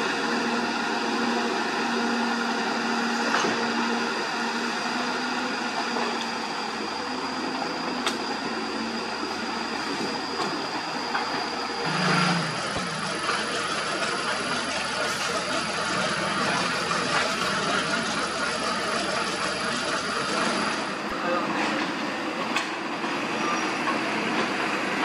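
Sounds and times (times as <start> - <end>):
truck diesel engine running: 4.0 - 21.1.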